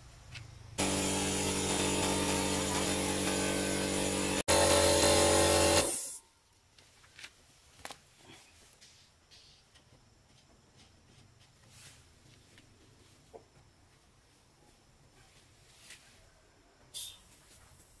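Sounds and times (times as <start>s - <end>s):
air compressor motor hum: 0.8s - 6.2s.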